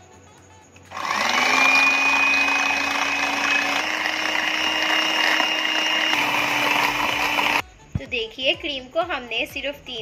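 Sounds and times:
electric hand mixer whining: 0.9s - 7.6s.

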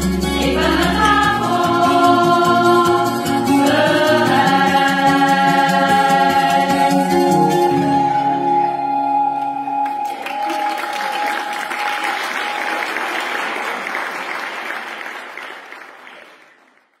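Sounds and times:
choir singing held chord: 0.3s - 8.6s
audience applause: 9.6s - 17.0s.

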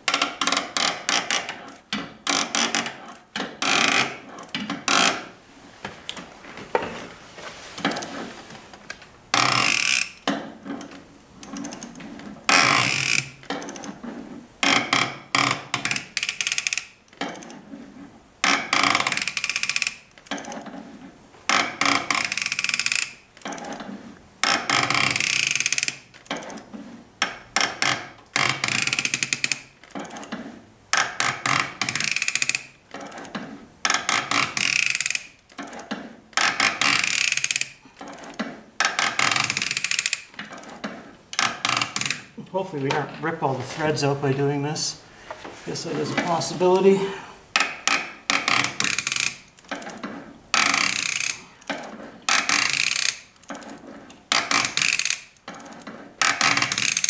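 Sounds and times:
hand ratchet clicking: 0.0s - 5.2s, 9.4s - 14.0s, 14.6s - 17.6s, 18.4s - 20.6s, 21.5s - 23.8s, 24.4s - 26.6s, 27.2s - 30.4s, 31.0s - 42.3s, 47.5s - 57.0s.

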